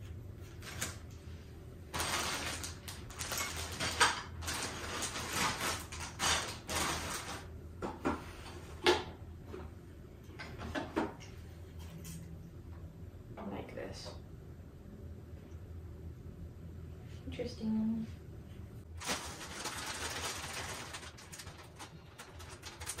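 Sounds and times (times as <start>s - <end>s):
plastic bags rustling: 1.9s - 7.5s, 19.0s - 23.0s.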